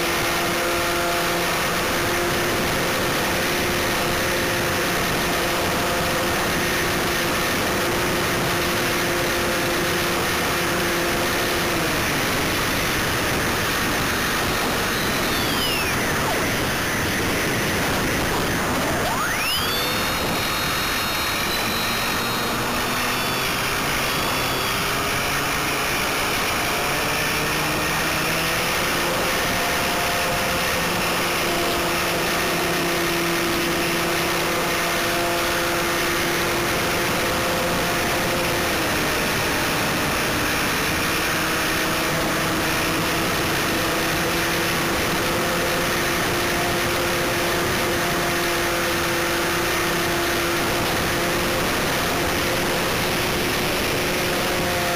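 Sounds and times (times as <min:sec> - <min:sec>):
electric motor and propeller hum: 0:00.0 - 0:54.9
wind rush: 0:11.5 - 0:25.6.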